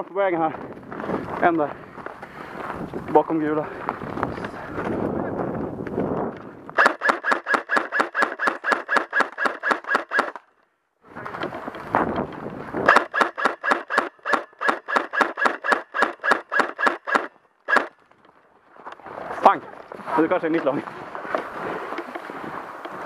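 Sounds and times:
airsoft gun shots: 6.8 - 10.4, 12.9 - 18.0.

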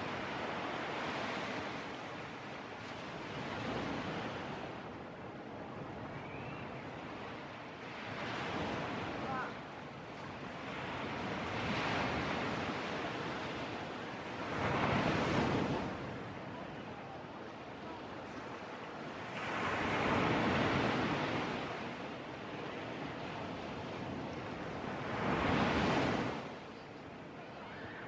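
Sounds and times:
sea surf breaking: 10.3 - 26.7.

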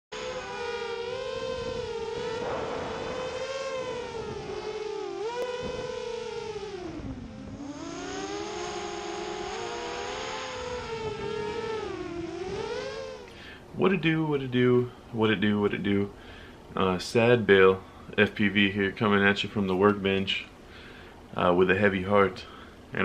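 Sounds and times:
quadcopter motors whining: 0.1 - 13.7.

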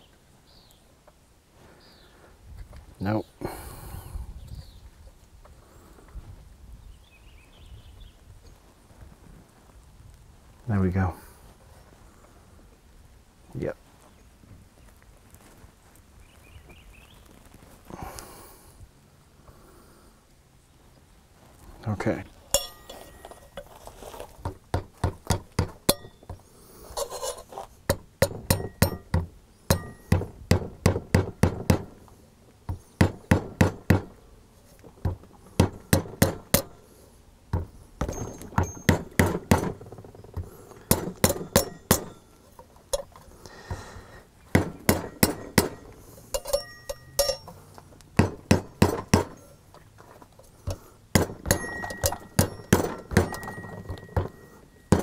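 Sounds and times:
hammer tapping on metal: 22.6 - 23.2, 24.4 - 26.4, 27.9 - 31.9, 33.0 - 34.2, 35.0 - 36.8, 37.5 - 39.8, 40.4 - 42.2, 44.5 - 47.6, 48.2 - 49.5, 50.6 - 55.0.

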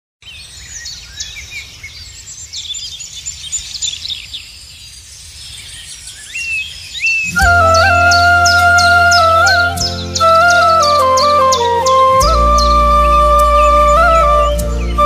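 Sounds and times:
many birds chirping: 0.2 - 15.0
rising whistled bird note: 6.1 - 15.0.

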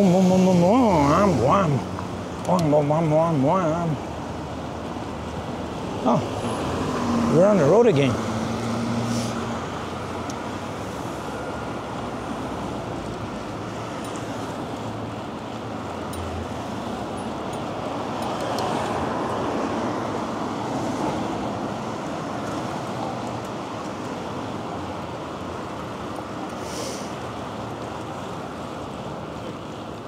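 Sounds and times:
road traffic noise: 0.0 - 30.0
short hiss: 9.1 - 9.4, 26.6 - 27.1.

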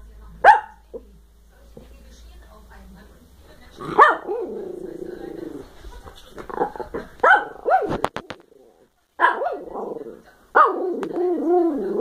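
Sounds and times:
whiny dog barks: 0.4 - 0.8, 4.0 - 4.6, 7.2 - 8.1, 9.2 - 9.8, 10.5 - 11.2
small dogs barking and yipping: 4.0 - 4.6, 6.7 - 8.1, 9.2 - 9.8.

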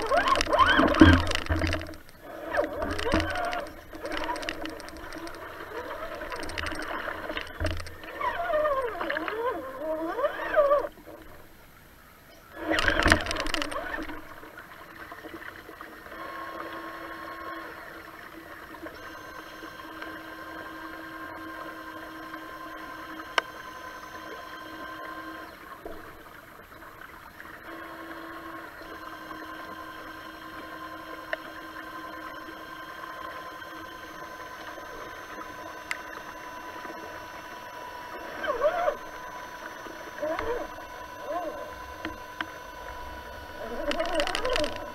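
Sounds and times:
electric motor whine: 0.0 - 11.5, 12.5 - 14.6, 16.0 - 44.9
person calling out: 40.3 - 41.7.

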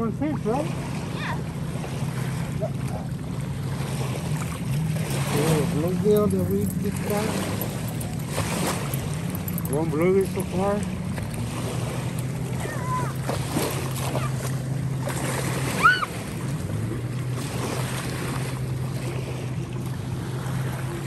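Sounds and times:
low motor hum: 0.0 - 21.0.

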